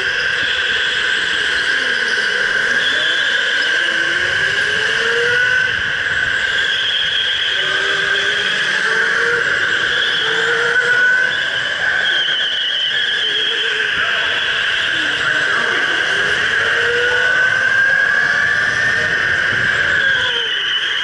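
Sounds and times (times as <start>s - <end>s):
electric go-kart motor whining: 0.0s - 21.0s.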